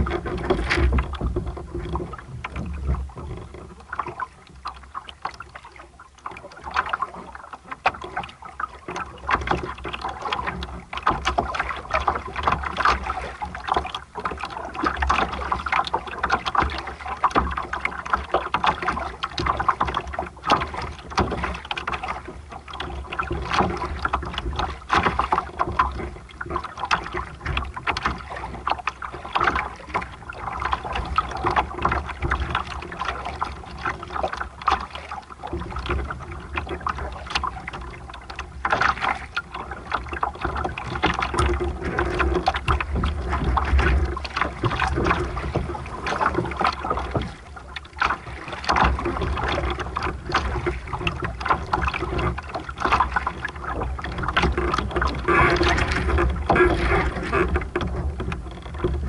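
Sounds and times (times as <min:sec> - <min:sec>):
water splashing against hull: 0:00.0 - 0:59.0.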